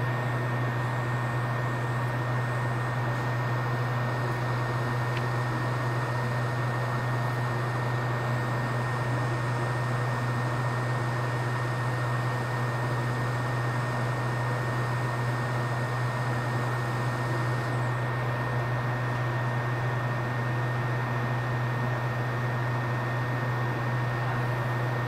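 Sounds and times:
fume extractor fan humming: 0.0 - 25.0.

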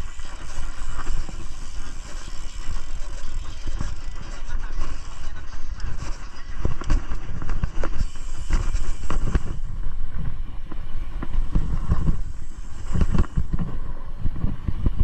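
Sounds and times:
bike tyres and wind rumble: 0.0 - 15.0
bike knocks and rattles: 5.9 - 15.0.

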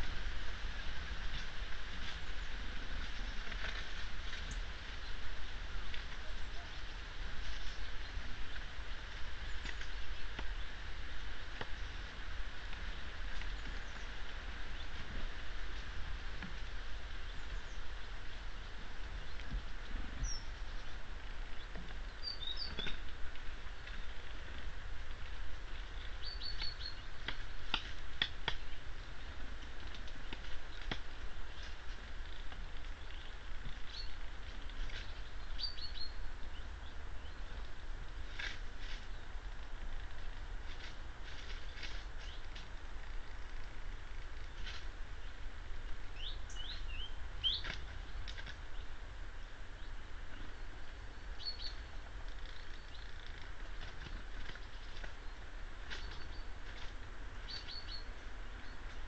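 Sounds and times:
steady low hum: 0.0 - 59.0
bird chirping: 17.2 - 24.1, 25.7 - 27.9, 32.9 - 34.2, 34.8 - 37.6, 46.2 - 53.5, 54.4 - 56.6, 57.4 - 59.0.

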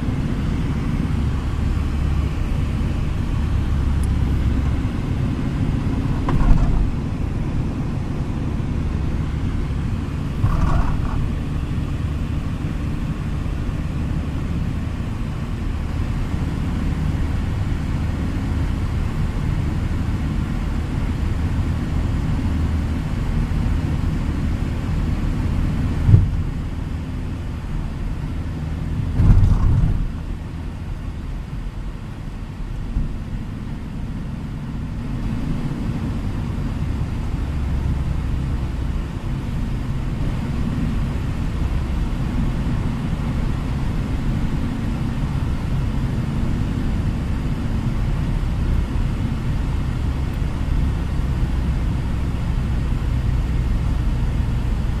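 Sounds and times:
car cabin road noise: 0.0 - 55.0
brief knocks: 6.1 - 7.0.

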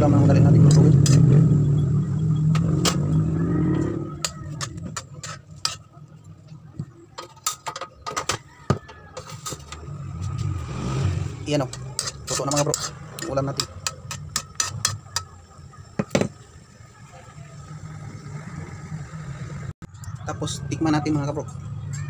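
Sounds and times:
loud low rumble: 0.0 - 4.5.

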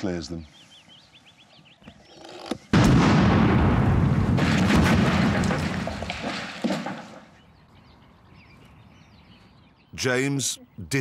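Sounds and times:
sharp cracks: 2.7 - 7.4
loud explosion boom: 2.8 - 6.0.

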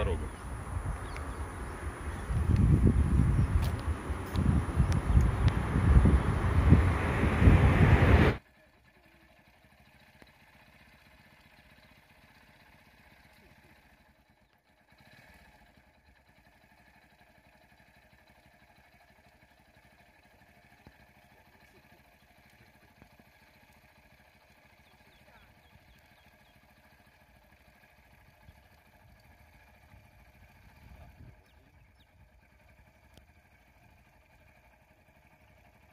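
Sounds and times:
wind buffeting microphone: 0.0 - 8.4, 29.9 - 32.2
faint vehicle engine idling: 0.0 - 35.9.

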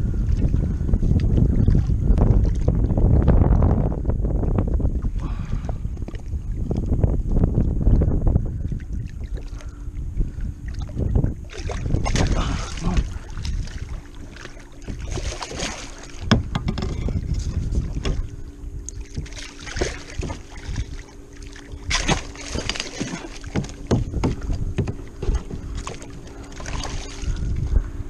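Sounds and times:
faint steady hum: 0.0 - 28.0
water splashing: 10.6 - 27.7
sharp knocks: 16.2 - 17.0, 23.5 - 25.7.

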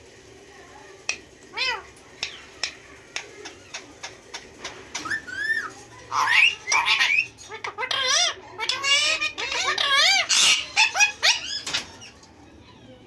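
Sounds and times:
parakeets squawking: 1.2 - 12.3
parakeet sharp clicks: 2.2 - 5.1.

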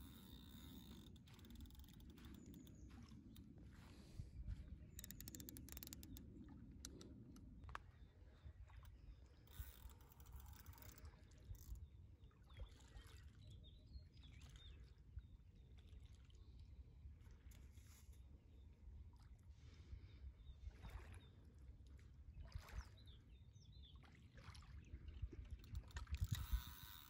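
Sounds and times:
river water trickling: 0.0 - 19.5, 20.7 - 27.0
quick clicks: 5.0 - 6.2.

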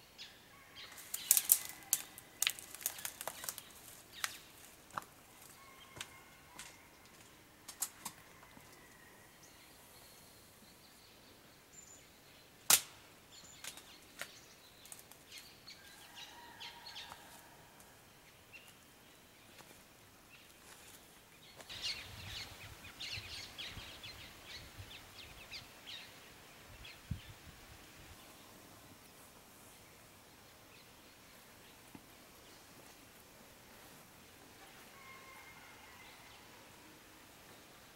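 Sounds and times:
small crackles: 0.9 - 6.8, 7.7 - 8.8, 12.7 - 15.4
sharp snap: 12.7 - 13.0.

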